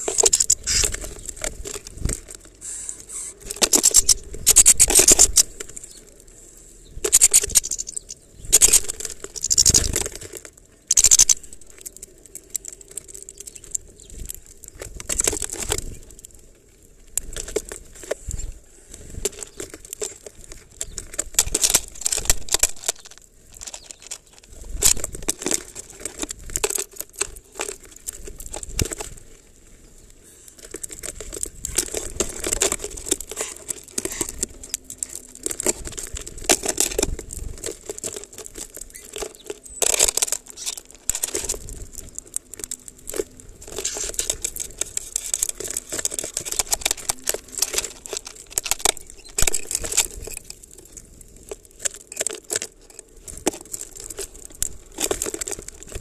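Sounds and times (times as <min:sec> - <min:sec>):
wings fluttering: 0:00.0 - 0:06.0, 0:07.0 - 0:12.0
beaks pecking and cracking seeds: 0:00.0 - 0:56.0.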